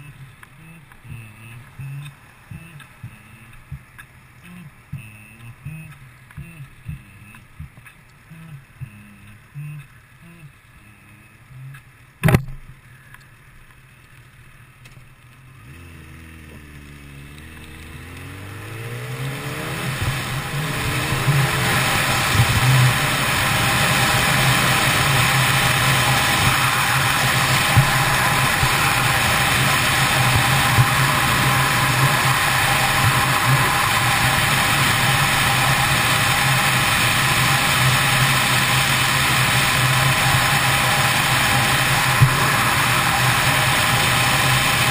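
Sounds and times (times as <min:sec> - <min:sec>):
motorcycle accelerating: 0:15.2 - 0:44.9.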